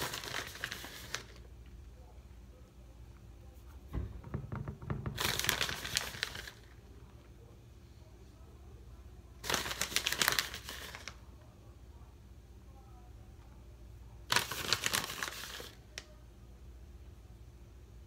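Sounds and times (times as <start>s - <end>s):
plastic bag crinkling: 0.0s - 1.5s, 5.1s - 6.8s, 9.4s - 11.2s.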